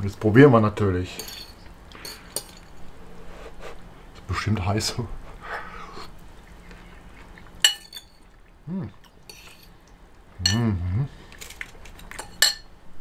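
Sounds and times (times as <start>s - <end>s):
man humming: 8.6s - 9.1s, 10.4s - 11.2s.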